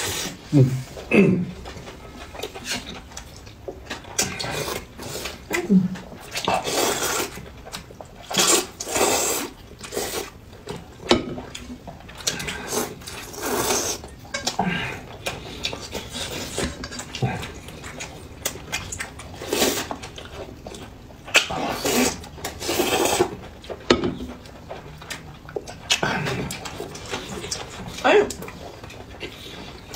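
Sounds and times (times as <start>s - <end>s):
people slurping noodles: 0.0s - 1.6s, 4.1s - 7.4s, 8.2s - 10.4s, 12.2s - 20.6s, 21.3s - 23.4s
noisy chewing: 0.0s - 29.9s.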